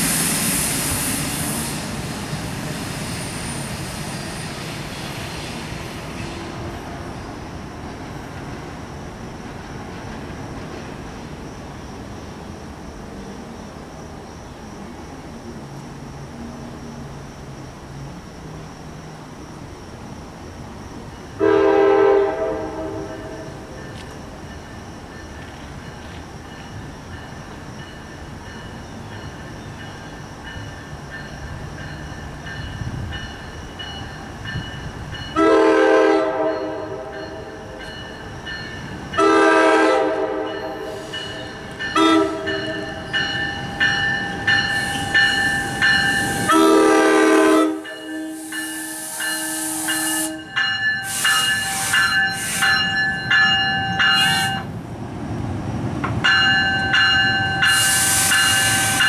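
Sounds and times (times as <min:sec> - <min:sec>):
train rumble: 0:00.0 - 0:59.0
train horn blasts: 0:21.4 - 0:23.7, 0:35.3 - 0:37.6, 0:39.2 - 0:43.1, 0:44.8 - 0:52.8, 0:57.6 - 0:59.0.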